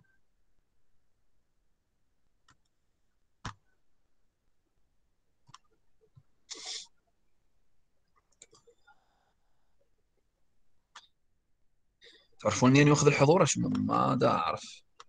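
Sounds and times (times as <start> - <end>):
computer mouse clicks: 2.4 - 2.7, 5.4 - 6.6.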